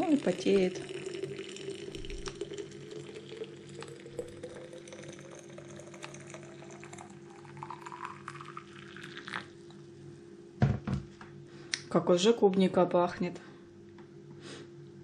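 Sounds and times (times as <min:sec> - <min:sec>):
water pouring into flask: 0:00.0 - 0:09.6.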